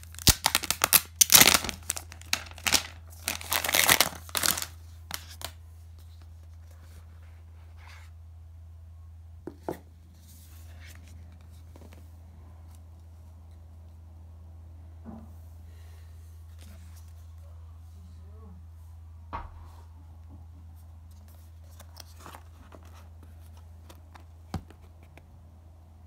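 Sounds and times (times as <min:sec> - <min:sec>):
plastic shrink wrap crinkling: 0:00.0 - 0:05.6.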